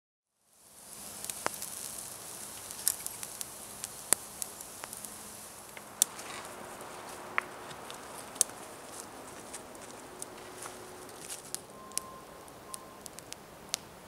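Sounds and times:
meat sizzling on a grill: 0.4s - 14.0s
crackling pops: 0.5s - 14.0s.

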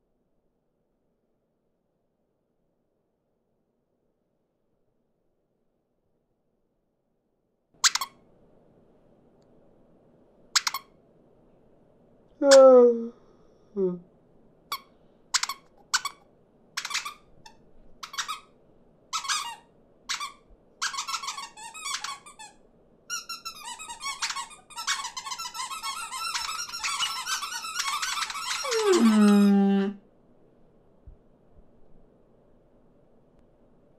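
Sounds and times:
cartoon birds squeaking and chirping: 7.8s - 8.2s, 10.6s - 10.8s, 15.4s - 16.2s, 26.2s - 29.8s.

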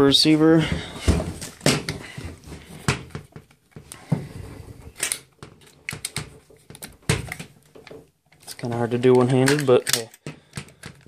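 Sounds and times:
rifle handling clicks and knocks: 4.8s - 11.0s.

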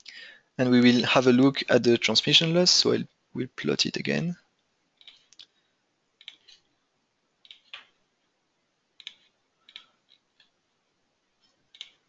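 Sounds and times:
computer mouse clicks: 5.0s - 5.5s, 6.2s - 6.6s, 7.4s - 8.0s, 9.0s - 10.5s, 11.7s - 12.0s.

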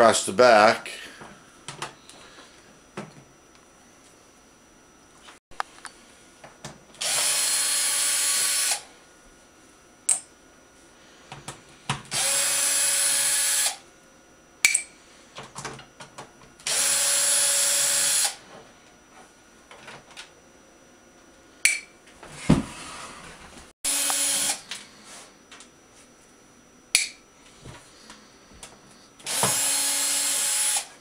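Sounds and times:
cordless drill spinning screws: 7.0s - 8.8s, 12.1s - 13.8s, 16.7s - 18.4s, 23.9s - 24.6s, 29.2s - 30.9s.

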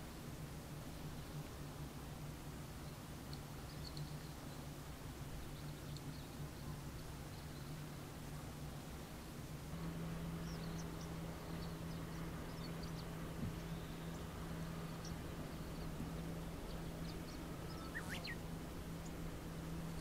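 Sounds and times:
soft background hiss: 0.0s - 20.0s
steady low hum: 0.0s - 20.0s
faint high bird chirps: 10.3s - 18.4s
sharp bird call: 17.7s - 18.4s.

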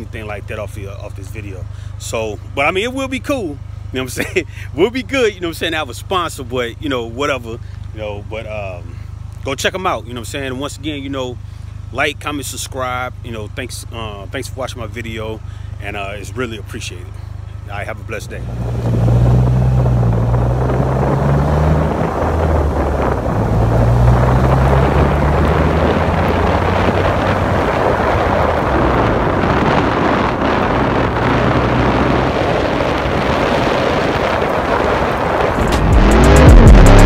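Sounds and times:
car engine running: 0.0s - 37.0s
wind rushing over microphone: 18.3s - 37.0s.

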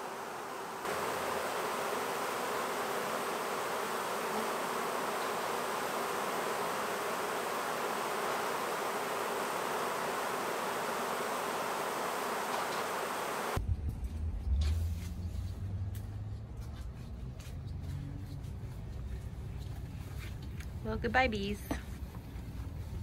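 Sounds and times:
bees buzzing: 0.0s - 13.6s.

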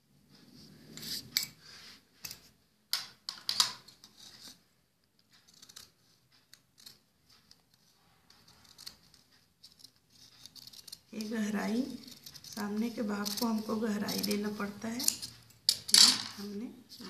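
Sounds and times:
scissors cutting cloth: 5.4s - 17.0s.

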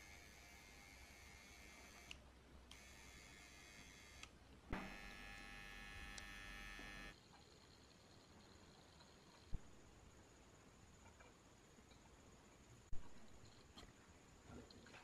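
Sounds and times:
electrical hum with high buzz: 0.0s - 7.2s
small click: 6.1s - 6.3s.

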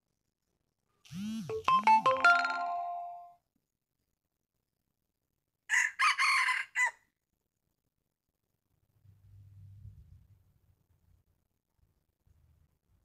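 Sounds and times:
ringing chime-like tones: 1.5s - 3.4s
rooster crowing: 5.7s - 7.0s.

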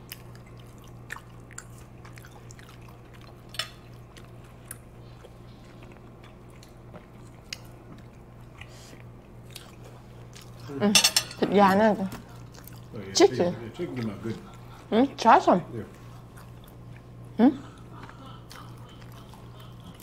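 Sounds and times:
faint chewing of food: 0.0s - 10.8s, 12.1s - 13.0s, 15.7s - 20.0s
steady low hum: 0.0s - 20.0s.

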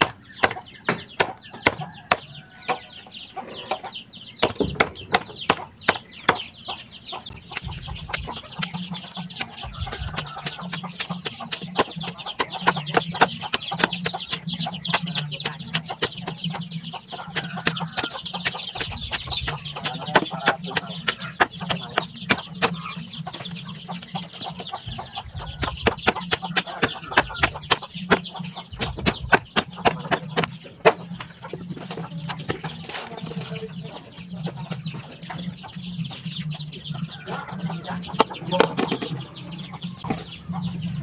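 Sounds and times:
machete chopping: 0.0s - 2.3s, 4.4s - 6.4s, 7.5s - 16.6s, 17.4s - 22.9s, 25.6s - 31.0s
young fowl peeping: 0.0s - 41.0s.

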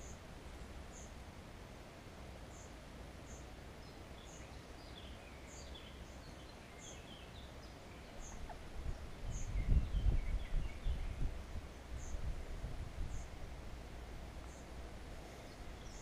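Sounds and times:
small birds chirping: 0.0s - 1.2s, 2.4s - 12.3s, 13.0s - 13.5s, 14.4s - 16.0s
stream: 0.0s - 16.0s
low rumble on microphone: 8.0s - 16.0s.

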